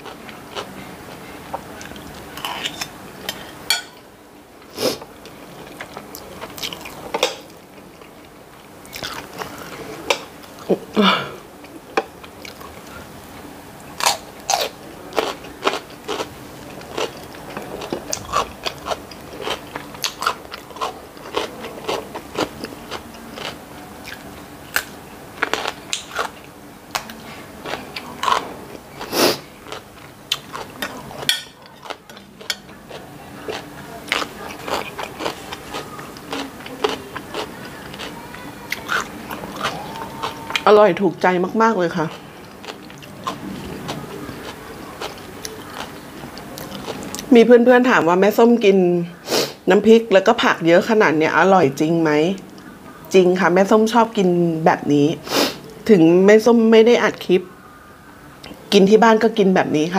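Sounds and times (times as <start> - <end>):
person chewing crunchy food: 5.1 - 10.7, 14.0 - 40.6, 42.0 - 47.3.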